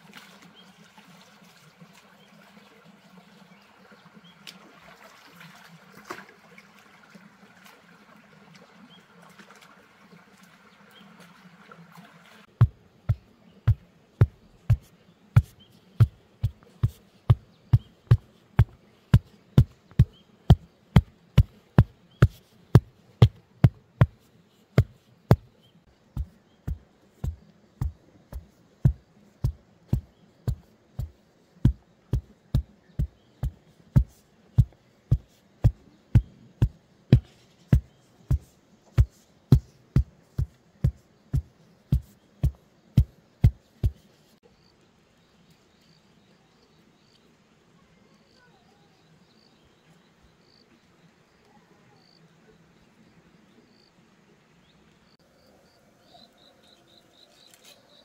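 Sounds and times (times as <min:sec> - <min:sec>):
faint insect chirping: 0:14.1 - 0:58.0
wooden pole thudding into soil: 0:26.2 - 0:44.0.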